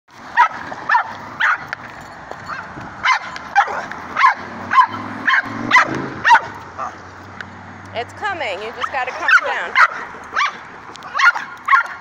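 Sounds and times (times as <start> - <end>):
dog barking in high yips: 0.4 - 1.7, 2.5 - 7.0, 8.8 - 12.0.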